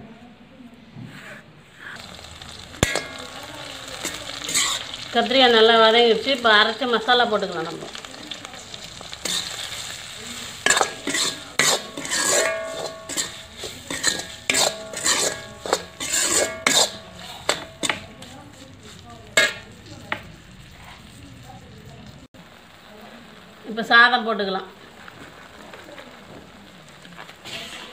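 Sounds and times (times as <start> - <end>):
spoon scraping and knocking pan: 1.0 - 7.0, 7.9 - 21.2
faint oil sizzle: 1.7 - 27.9.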